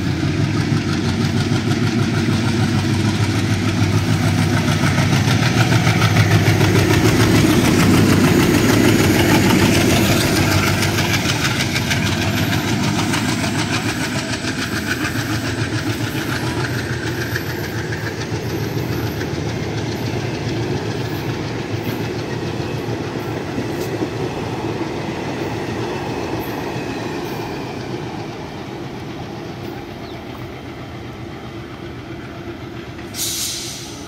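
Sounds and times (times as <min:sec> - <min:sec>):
train wheels clattering over rails: 0:00.0 - 0:34.0
hiss burst: 0:33.1 - 0:34.0.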